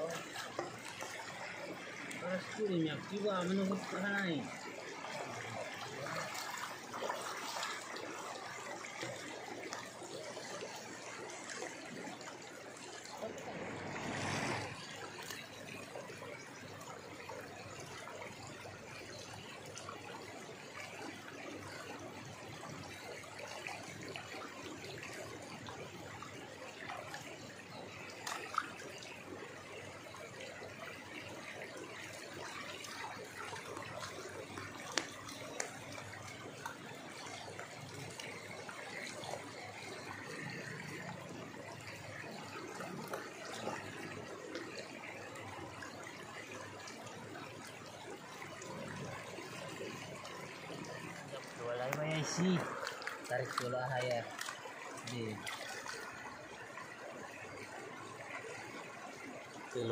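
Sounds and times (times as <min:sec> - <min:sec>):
water sloshing in gold pan: 0:26.7 - 0:59.9.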